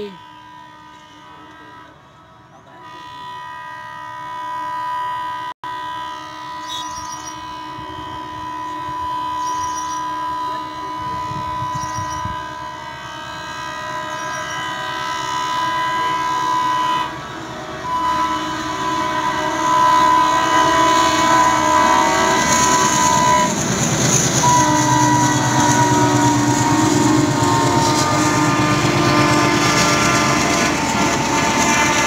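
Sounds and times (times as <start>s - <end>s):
train horn long blast: 0.0s - 32.0s.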